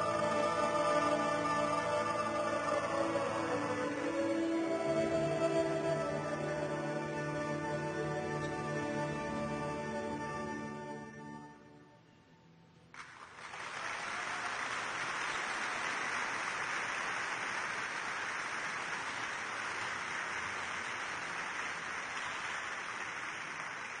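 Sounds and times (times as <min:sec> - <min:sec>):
audience applauding: 0:13.0 - 0:24.0.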